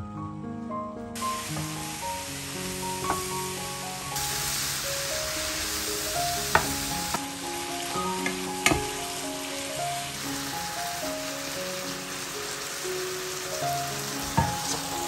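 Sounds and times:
mushrooms sizzling in oil: 1.2s - 15.0s
wooden spoon knocking on pan: 1.4s - 1.8s, 3.0s - 3.4s, 6.5s - 7.2s, 8.2s - 9.0s, 14.2s - 14.9s.

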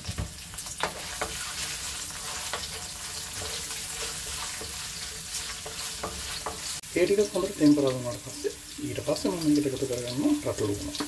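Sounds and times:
spices sizzling in hot oil: 0.0s - 11.0s
wooden spoon knocking pan: 5.5s - 6.7s.

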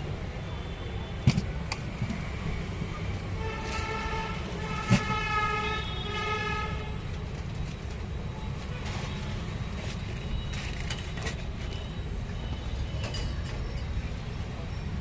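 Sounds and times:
street traffic rumbling: 0.0s - 15.0s
vehicle horn honking: 3.4s - 6.9s.

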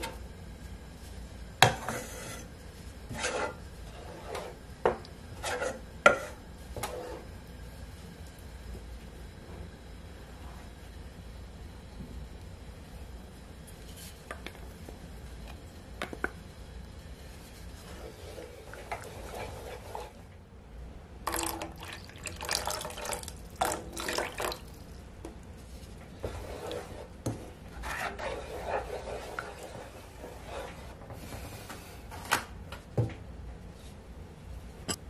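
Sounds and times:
wooden spatula stirring sauce: 1.6s - 7.3s, 17.1s - 20.2s, 25.6s - 31.2s
liquid pouring into sauce: 21.3s - 24.8s.

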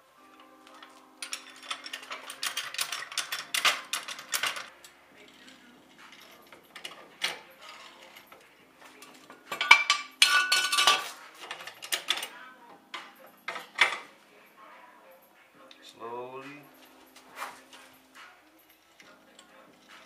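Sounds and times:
metallic clatter with ring: 0.8s - 14.1s.

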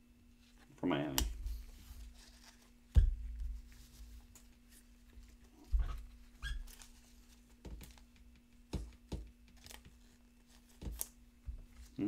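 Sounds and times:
faint steady hum: 0.0s - 12.0s
cards knocking on a table: 7.6s - 10.0s.

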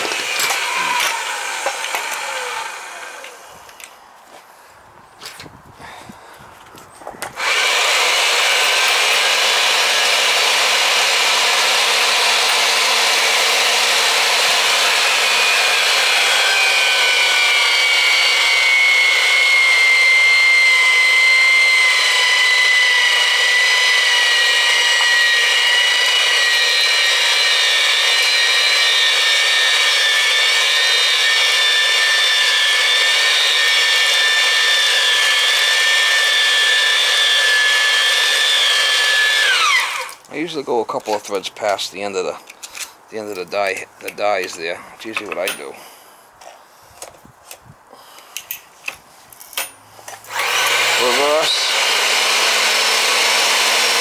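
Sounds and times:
die grinding while cutting threads: 0.0s - 3.5s, 7.2s - 41.7s, 49.6s - 54.0s
pipe threader motor whine: 0.0s - 3.9s, 7.2s - 40.2s, 50.3s - 54.0s.

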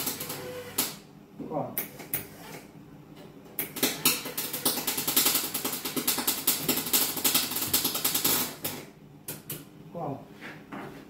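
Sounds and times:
welder arc crackling: 0.0s - 1.0s.

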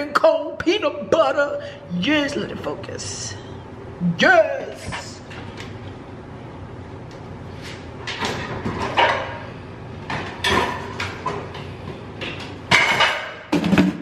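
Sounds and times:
kitchen knocks and clanks: 10.1s - 11.6s, 12.2s - 14.0s.

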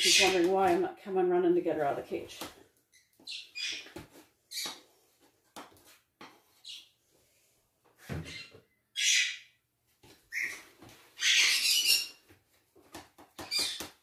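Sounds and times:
parrot squawking: 8.3s - 9.5s, 10.3s - 10.6s, 11.2s - 12.1s.

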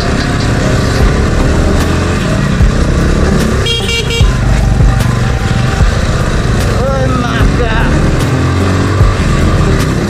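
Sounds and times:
dirt bike engine running: 0.0s - 10.0s
vehicle horn blast: 3.6s - 4.4s.

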